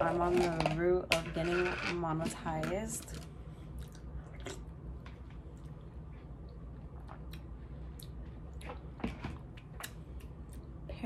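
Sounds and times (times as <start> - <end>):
soft chewing: 3.0 - 10.9.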